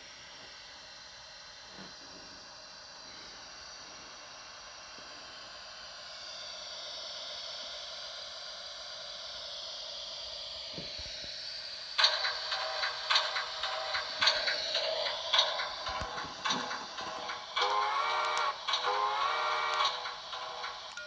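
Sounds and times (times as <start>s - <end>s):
rapid mechanical clicking and clattering: 12.0s - 21.0s.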